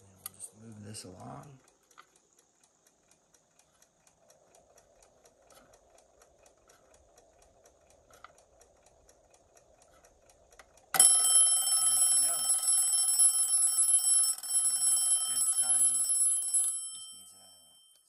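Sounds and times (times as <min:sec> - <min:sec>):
faint whir of clock hands: 0:00.0 - 0:18.0
alarm clock ticking: 0:00.3 - 0:18.0
alarm bell ringing: 0:11.0 - 0:18.0.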